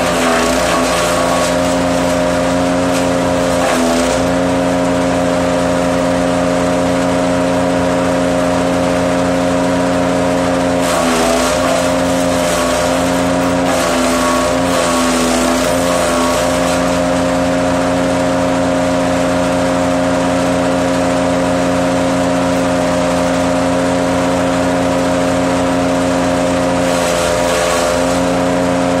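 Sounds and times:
wood being chipped: 0.0 - 4.4, 10.8 - 17.3, 26.8 - 28.4
wood chipper motor hum: 0.0 - 29.0.

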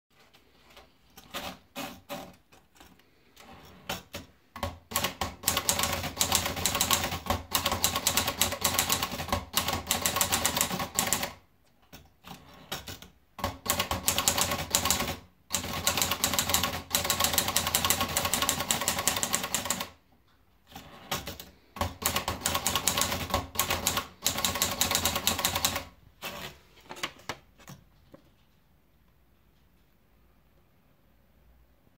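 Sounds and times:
typewriter keystrokes: 3.4 - 20.0, 20.7 - 26.5.

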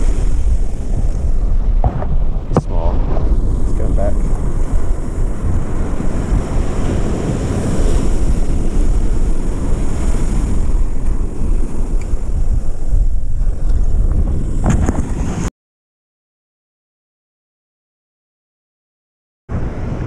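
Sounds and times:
surf breaking on beach: 0.0 - 15.5
wind buffeting microphone: 0.0 - 15.5
microphone handling knocks: 1.8 - 3.3.

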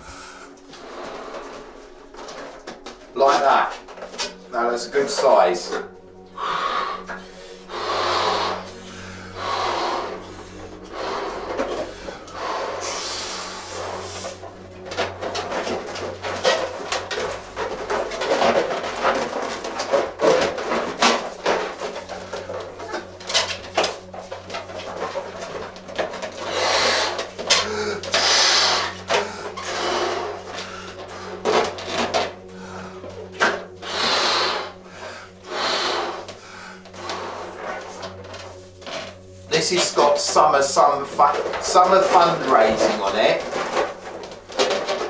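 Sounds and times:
balloon rubber squeaking: 6.0 - 45.0
breaths blown into balloon: 6.2 - 17.0, 25.8 - 38.2.

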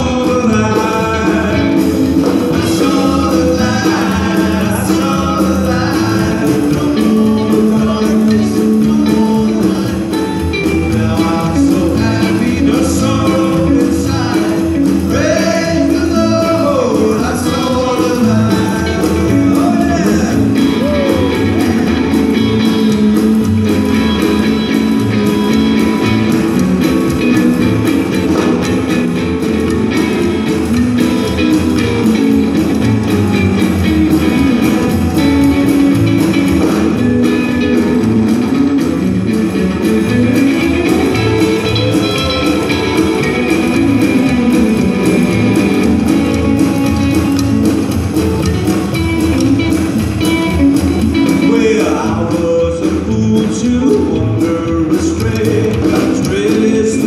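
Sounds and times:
drum kit: 0.0 - 57.0
electric guitar: 0.0 - 57.0
upright bass: 0.0 - 57.0.

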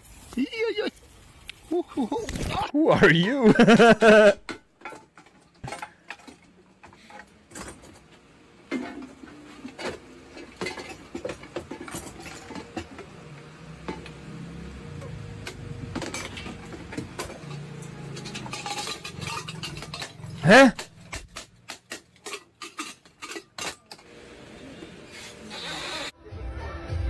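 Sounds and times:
metal pots clinking: 8.7 - 14.3, 15.0 - 24.1.

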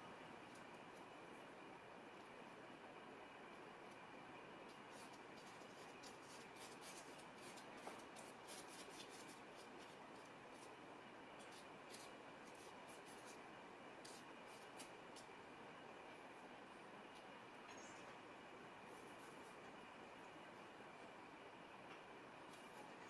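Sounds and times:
brush strokes on paper: 4.7 - 10.7, 14.0 - 15.3.

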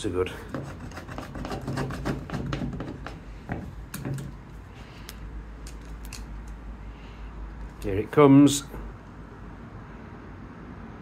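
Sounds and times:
caulking gun clicks and knocks: 2.1 - 4.4.

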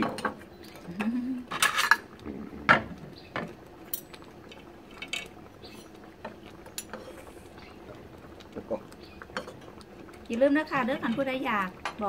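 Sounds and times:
cutlery clinking on bowls: 1.5 - 2.0.

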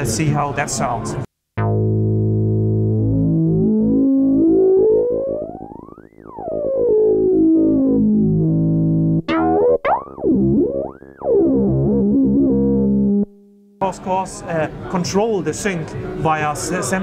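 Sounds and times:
synthesizer sweeping low note: 1.6 - 13.4
synthesizer swooping short notes: 1.6 - 13.4.

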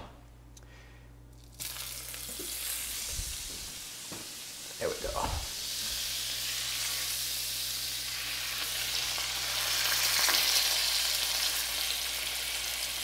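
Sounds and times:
fish frying in a skillet: 5.5 - 13.0.

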